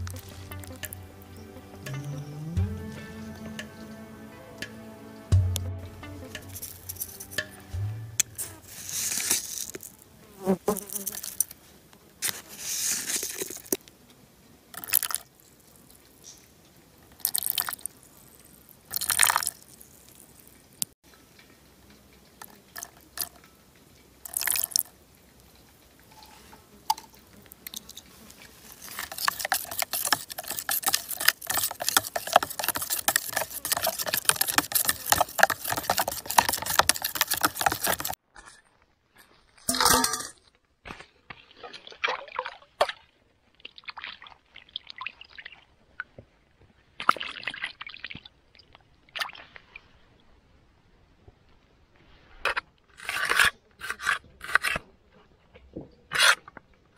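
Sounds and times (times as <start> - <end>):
plastic spoon stirring thick sauce: 0.0 - 1.0, 26.9 - 38.2
liquid splashing into plastic tub: 41.4 - 45.5.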